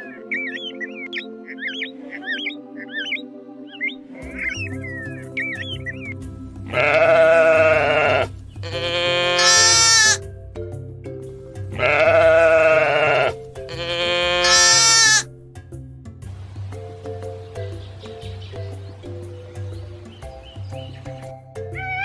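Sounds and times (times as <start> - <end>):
background music: 0.0 - 22.0
sheep bleating: 6.7 - 10.2, 11.7 - 15.3, 21.8 - 22.0.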